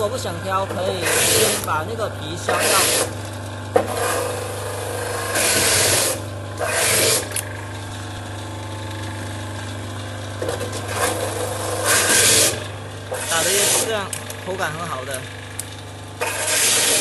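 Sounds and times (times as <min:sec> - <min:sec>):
grinder motor humming: 0:00.0 - 0:17.0
rasping grinding: 0:00.7 - 0:01.8, 0:02.4 - 0:08.3, 0:10.4 - 0:14.1, 0:16.2 - 0:17.0.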